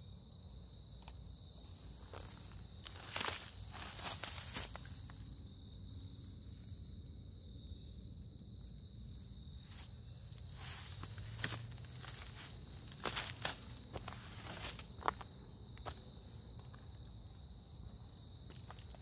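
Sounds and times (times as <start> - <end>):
insects trilling: 0.0 - 19.0
footsteps on dry leaves: 2.0 - 5.2, 9.6 - 15.2.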